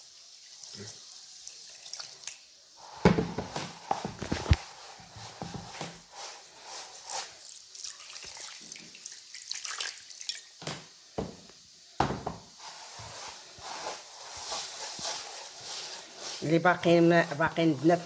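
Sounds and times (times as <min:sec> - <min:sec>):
water trickling and dripping: 0:00.0 - 0:02.6, 0:07.4 - 0:10.8
damp grains rubbed by hand: 0:02.8 - 0:09.2, 0:12.6 - 0:18.0.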